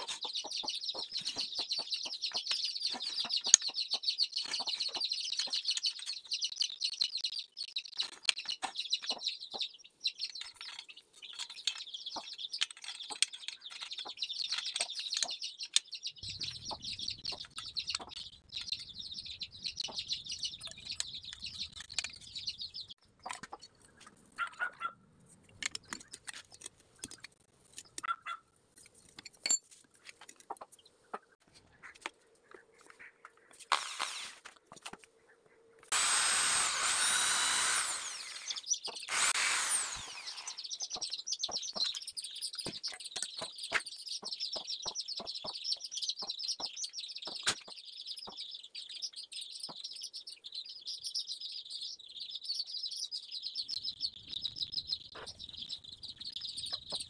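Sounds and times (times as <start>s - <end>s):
birds chirping: 0.0s - 28.6s, 30.2s - 57.0s
clicks of metal parts: 28.7s - 30.5s
electric drill drilling metal: 33.7s - 34.4s, 35.9s - 40.7s.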